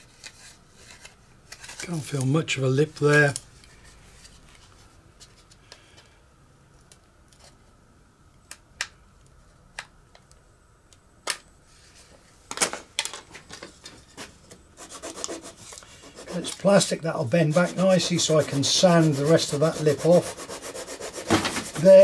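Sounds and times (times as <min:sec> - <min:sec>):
plastic rubbing: 0:14.0 - 0:22.0.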